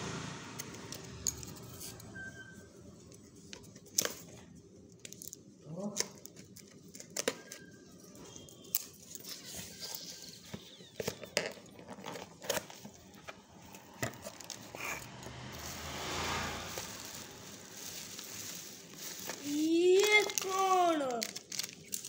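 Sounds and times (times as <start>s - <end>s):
packing paper crinkling: 15.6s - 22.0s.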